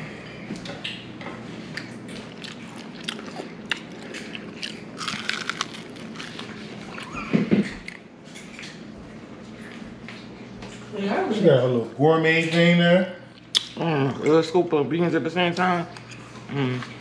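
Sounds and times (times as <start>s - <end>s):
crunchy chewing: 1.7s - 8.0s.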